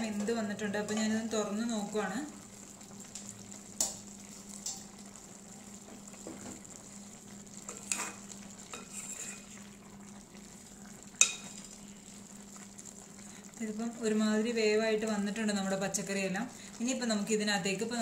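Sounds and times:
spoon stirring vegetables in pot: 0:07.6 - 0:09.5, 0:11.2 - 0:11.8.

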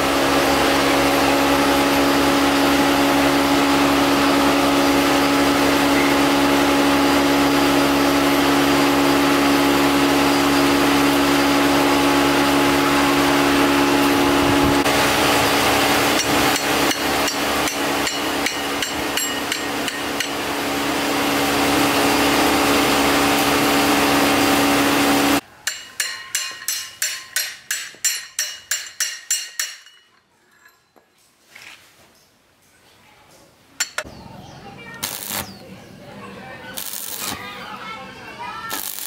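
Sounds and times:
hammer striking steel rotor: 0:15.8 - 0:20.6, 0:25.6 - 0:30.2, 0:33.8 - 0:34.1.

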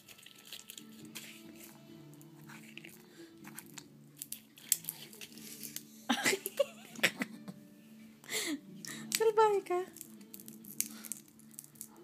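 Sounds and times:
peanut shells crunching: 0:00.0 - 0:05.9, 0:09.9 - 0:12.0.

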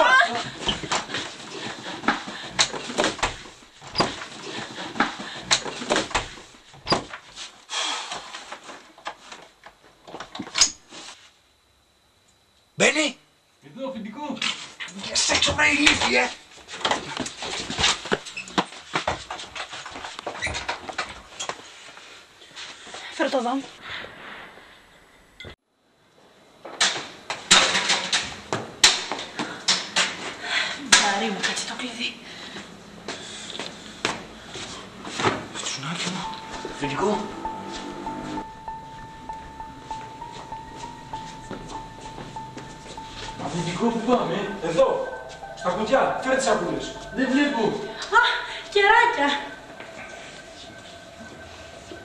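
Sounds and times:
people shuffling about: 0:00.0 - 0:07.6, 0:32.5 - 0:38.4, 0:39.2 - 0:52.0.

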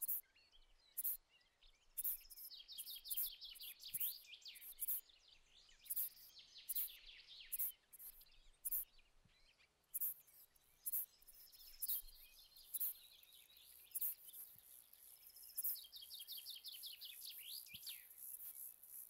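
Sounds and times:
bush-cricket chirping: 0:02.0 - 0:05.0, 0:05.8 - 0:08.9, 0:10.0 - 0:19.0.

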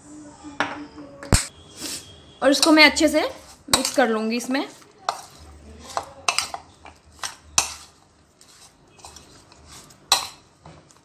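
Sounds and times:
metal spoon scraping ceramic bowl: 0:02.6 - 0:10.4.

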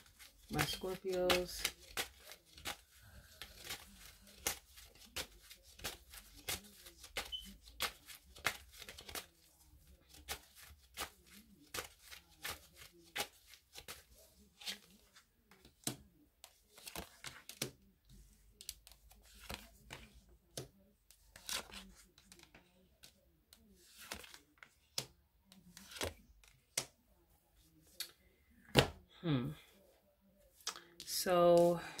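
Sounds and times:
cards being shuffled: 0:00.0 - 0:17.8, 0:18.6 - 0:23.2, 0:23.8 - 0:25.1, 0:25.7 - 0:26.9.

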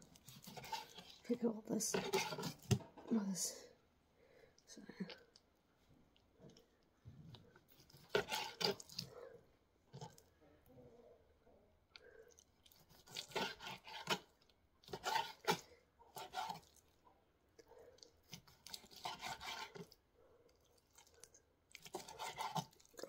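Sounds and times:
knife slicing meat on cutting board: 0:00.2 - 0:01.2, 0:01.9 - 0:02.8, 0:07.9 - 0:09.0, 0:12.9 - 0:14.2, 0:14.8 - 0:16.7, 0:18.3 - 0:19.9.

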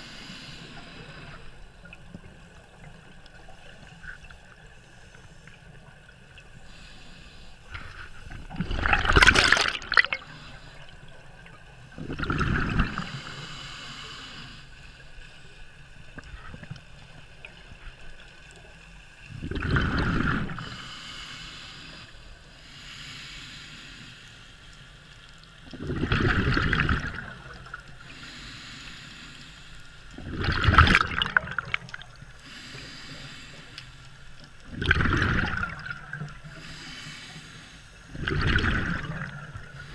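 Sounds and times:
regulator inhale hiss: 0:00.0 - 0:01.8, 0:06.5 - 0:08.3, 0:10.0 - 0:11.1, 0:13.0 - 0:15.8, 0:20.4 - 0:25.2, 0:27.6 - 0:30.2, 0:31.6 - 0:34.6, 0:35.8 - 0:38.2, 0:39.0 - 0:39.9
gurgling exhaled bubbles: 0:07.7 - 0:10.4, 0:11.9 - 0:13.2, 0:19.3 - 0:20.6, 0:25.7 - 0:27.8, 0:30.2 - 0:32.2, 0:34.6 - 0:36.6, 0:38.1 - 0:39.9.

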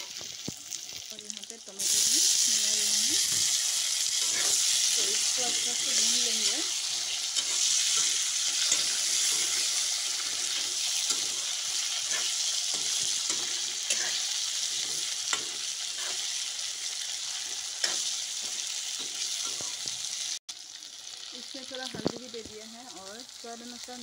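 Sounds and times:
food sizzling in hot oil: 0:00.0 - 0:24.0
metal spatula scraping pan: 0:03.2 - 0:16.5.

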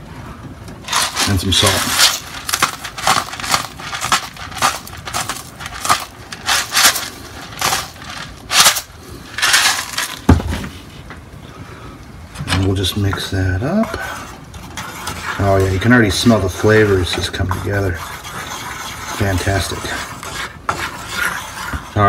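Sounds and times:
salt grinder grinding: 0:00.9 - 0:10.3.

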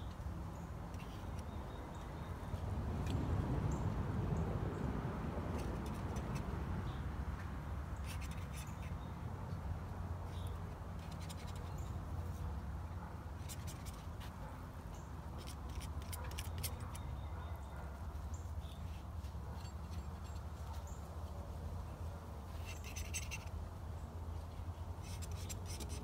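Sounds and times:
palette knife scraping and tapping: 0:05.5 - 0:06.6, 0:07.4 - 0:09.1, 0:13.4 - 0:17.3, 0:22.6 - 0:23.5, 0:25.0 - 0:26.0.

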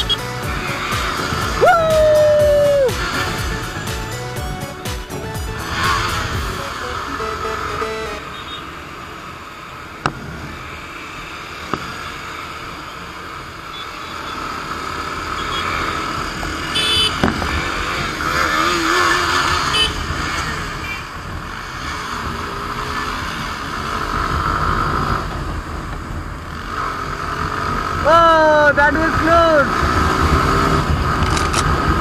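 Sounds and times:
motorcycle engine running: 0:00.0 - 0:32.0
wind and road noise: 0:00.0 - 0:32.0
short high beeps: 0:06.5 - 0:08.6.

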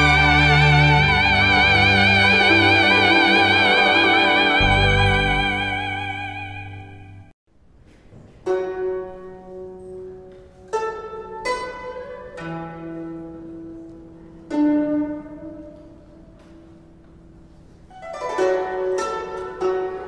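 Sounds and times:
held wavering note: 0:00.0 - 0:07.3
sparse plucked-string notes: 0:00.0 - 0:07.3.

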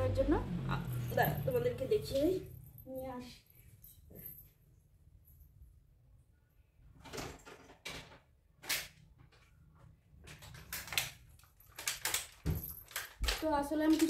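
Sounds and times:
household objects rustling and clicking: 0:07.0 - 0:14.0.

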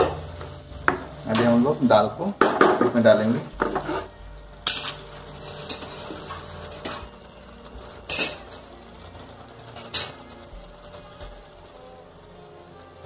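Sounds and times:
metal spoon clinking on pot: 0:08.1 - 0:08.4.

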